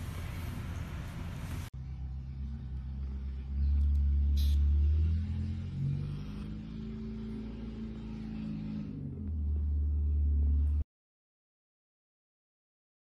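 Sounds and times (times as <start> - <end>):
faint mechanical hum: 0.0 - 10.8
low steady rumble: 0.0 - 10.8.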